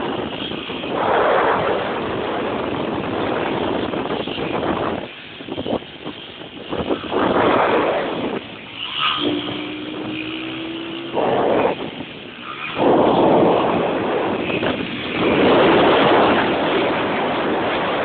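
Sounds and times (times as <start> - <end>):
motorcycle engine revving: 6.8 - 18.0
thin steady tone: 8.6 - 13.0.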